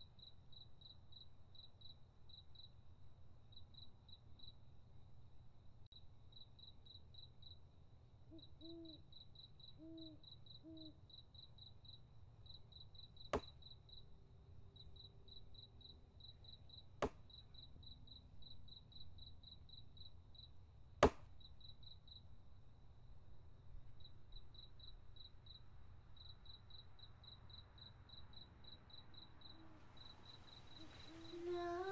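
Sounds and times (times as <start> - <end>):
crickets chirping: 0.0 - 4.9, 5.9 - 20.6, 21.4 - 31.9
axe chopping log: 21.0 - 21.3.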